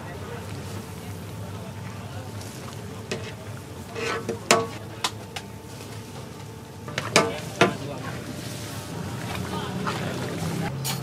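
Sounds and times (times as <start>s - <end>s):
metal spatula scraping a wok: 3.1s - 4.8s.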